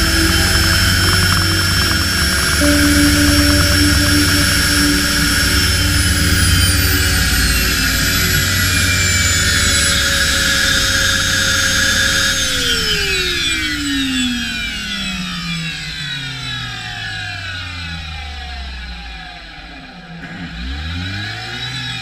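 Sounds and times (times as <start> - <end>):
turbine whining: 0.0 - 14.7.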